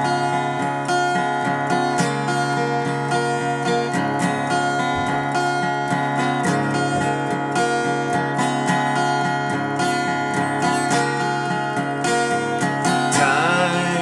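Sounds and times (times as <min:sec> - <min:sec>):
acoustic guitar strumming: 0:00.0 - 0:14.0
man singing: 0:13.0 - 0:14.0.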